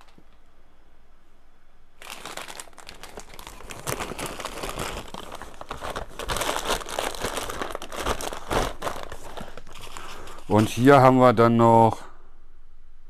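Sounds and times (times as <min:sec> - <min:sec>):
paper bag rustling: 0:02.0 - 0:10.9.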